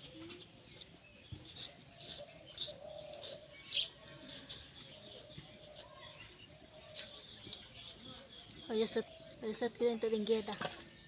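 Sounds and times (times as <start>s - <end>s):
knife scraping potato skin: 0.0s - 8.4s.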